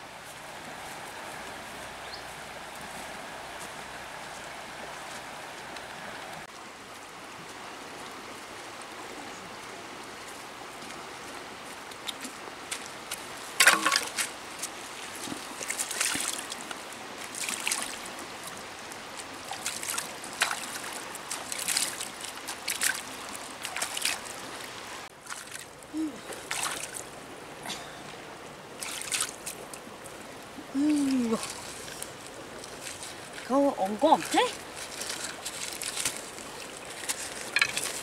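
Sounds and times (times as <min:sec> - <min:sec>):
river flowing: 0:00.0 - 0:38.0
hands splashing water: 0:34.2 - 0:38.0.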